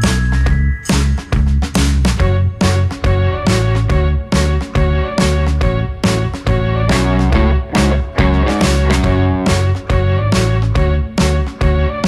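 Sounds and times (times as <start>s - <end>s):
plucked guitar music: 6.9s - 9.8s.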